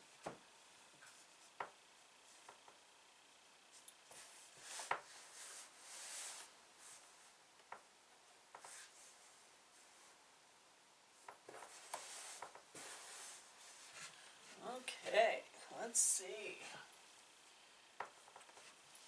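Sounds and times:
rustling and rubbing of fabric: 0:00.0 - 0:03.0, 0:03.6 - 0:07.5, 0:08.5 - 0:10.3, 0:11.1 - 0:15.2, 0:18.1 - 0:19.0.

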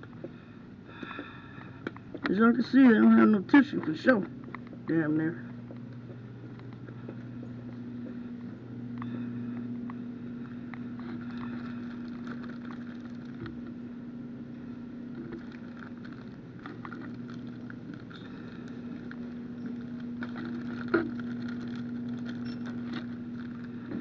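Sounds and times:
low electrical hum: 0:00.0 - 0:24.0
faint clicks and rustles: 0:05.5 - 0:13.8, 0:15.0 - 0:24.0.

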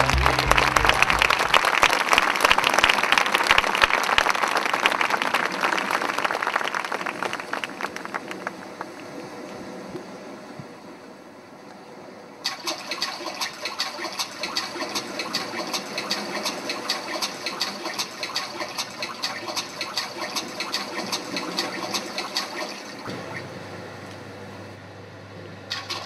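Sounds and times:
water splashing: 0:12.5 - 0:23.1.

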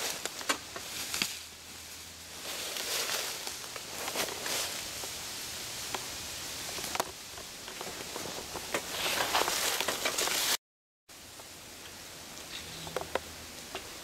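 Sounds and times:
footsteps in dry leaves: 0:00.0 - 0:10.6.

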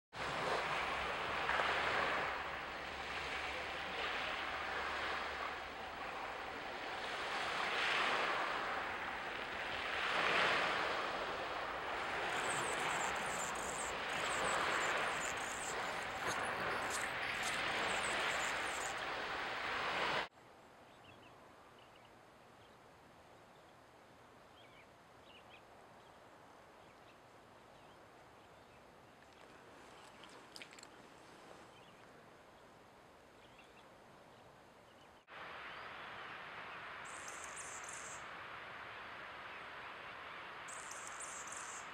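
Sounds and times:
rushing background noise: 0:11.7 - 0:20.3
hummingbird chattering song: 0:12.3 - 0:19.0.

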